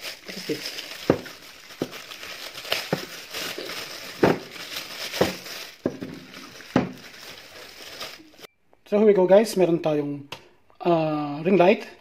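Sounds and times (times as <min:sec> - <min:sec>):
plastic bags crinkling: 0:00.0 - 0:08.5
hard plastic pieces knocking: 0:01.0 - 0:02.1, 0:04.1 - 0:07.1.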